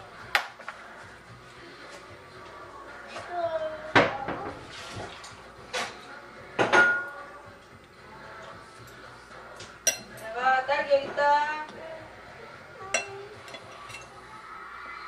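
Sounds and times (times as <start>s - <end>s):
dishes and cutlery clinking: 3.9s - 11.6s, 12.8s - 14.2s.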